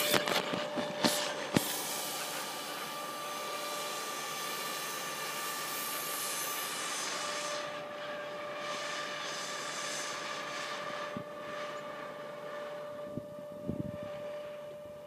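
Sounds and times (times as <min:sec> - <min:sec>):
model hovercraft fan whine: 0:00.0 - 0:15.0.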